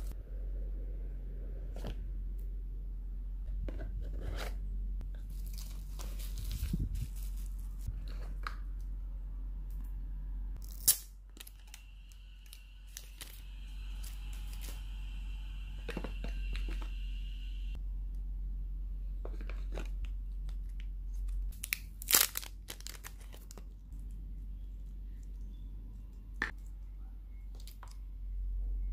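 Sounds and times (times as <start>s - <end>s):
bubble wrap and plastic crinkling: 5.1s - 8.4s, 20.4s - 23.8s.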